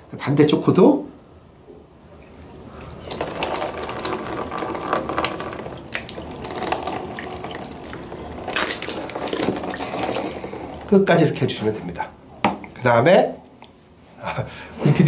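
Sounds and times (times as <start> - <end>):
saline splashing into plastic tub: 2.9 - 11.6.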